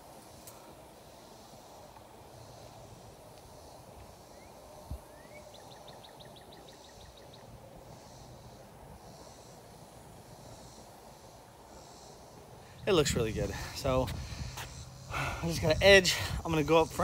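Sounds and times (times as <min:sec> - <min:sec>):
steady hiss and low rumble: 0:00.0 - 0:17.0.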